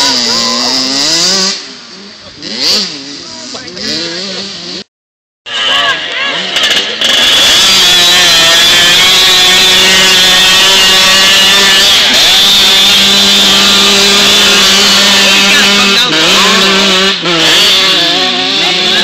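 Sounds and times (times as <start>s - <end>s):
dirt bike engine revving: 0.0s - 4.9s, 5.5s - 19.0s.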